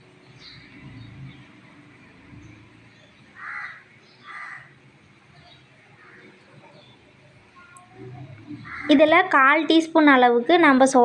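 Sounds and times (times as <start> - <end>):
crow cawing: 3.3 - 4.8, 6.0 - 6.4, 8.6 - 9.0.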